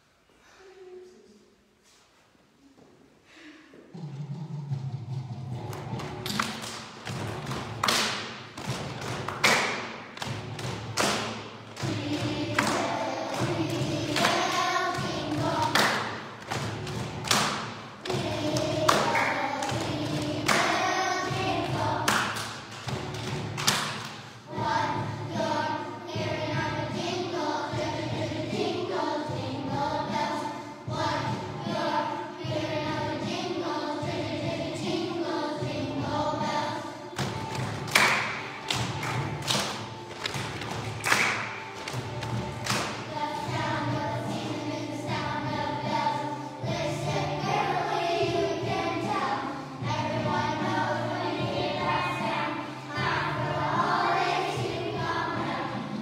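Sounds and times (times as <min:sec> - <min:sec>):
choir singing: 0:11.8 - 0:16.4, 0:18.0 - 0:22.1, 0:24.5 - 0:37.2, 0:43.1 - 0:56.0.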